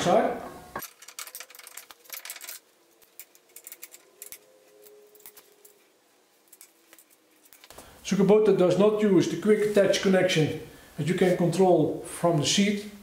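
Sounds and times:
metallic clinks of steel parts: 0.8s - 7.7s.

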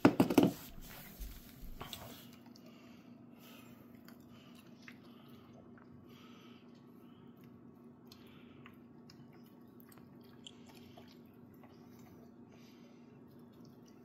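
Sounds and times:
dog chewing wetly: 6.8s - 14.0s.

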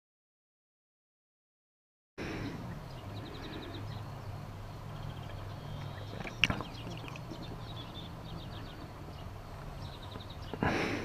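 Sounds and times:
bird calls rattling high ticks: 2.7s - 10.7s.

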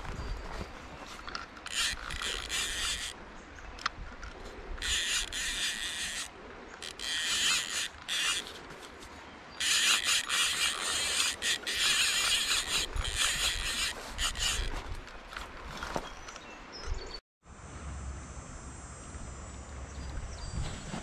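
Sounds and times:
fishing reel cranking: 1.6s - 3.2s, 4.8s - 8.6s, 9.6s - 14.8s.

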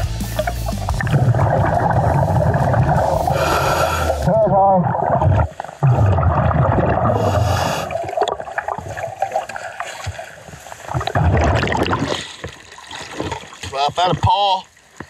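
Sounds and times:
air bubbling from scuba regulator: 0.3s - 9.8s, 10.9s - 12.2s.

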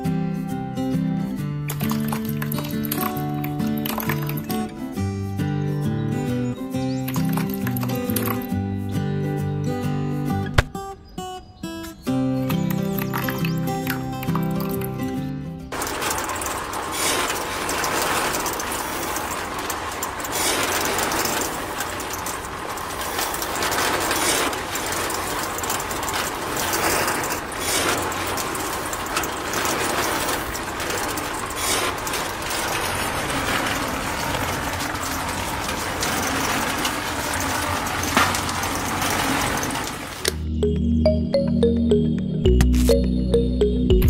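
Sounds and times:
model concrete mixer rattling: 1.2s - 5.0s, 5.8s - 8.6s, 12.4s - 40.4s.

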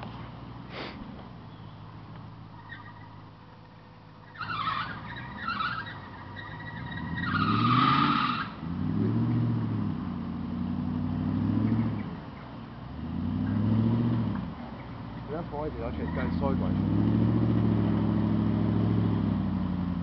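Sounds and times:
engine revving: 4.2s - 20.0s.

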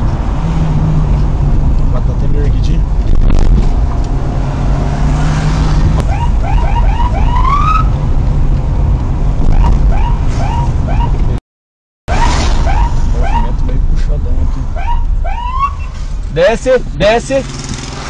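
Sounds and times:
car engine and road noise: 0.0s - 11.4s, 12.1s - 18.0s
police siren yelps: 6.1s - 8.0s, 9.5s - 11.2s, 12.1s - 13.5s, 14.8s - 15.9s.

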